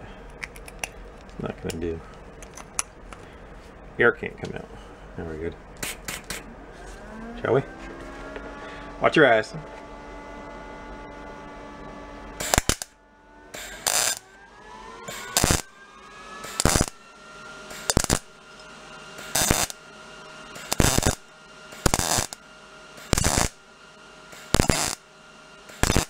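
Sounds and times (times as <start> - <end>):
welding arc bursts: 5.8 - 6.5, 12.4 - 14.3, 15.0 - 15.8, 16.4 - 17.0, 17.7 - 19.9, 20.5 - 23.7, 24.3 - 26.0.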